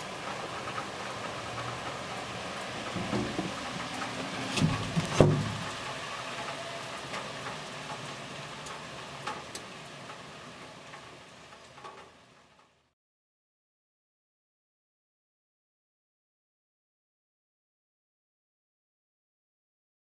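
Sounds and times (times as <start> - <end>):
steady hiss of noise: 0.0 - 13.0
louder knocks: 3.0 - 3.6, 4.6 - 5.6.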